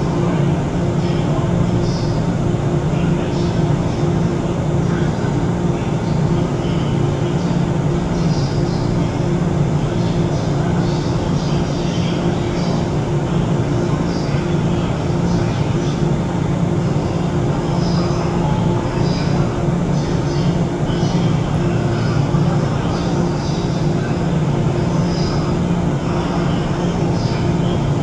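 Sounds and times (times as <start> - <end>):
electric train humming: 0.0 - 28.0.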